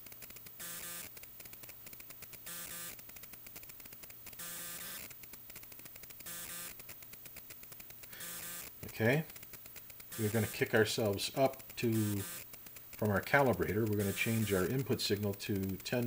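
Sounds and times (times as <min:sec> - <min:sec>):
rapid ticking: 0:00.0 - 0:16.0
short buzzing tone: 0:00.6 - 0:01.2, 0:02.4 - 0:03.0, 0:04.4 - 0:05.2, 0:06.2 - 0:06.9, 0:08.1 - 0:09.4, 0:10.0 - 0:14.8
low steady hum: 0:07.6 - 0:16.0.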